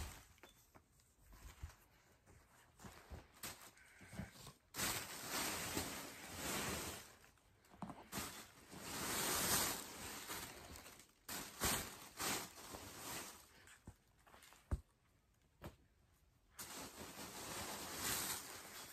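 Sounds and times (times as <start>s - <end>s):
plastic packaging crinkling: 4.6s - 13.8s, 16.6s - 18.9s.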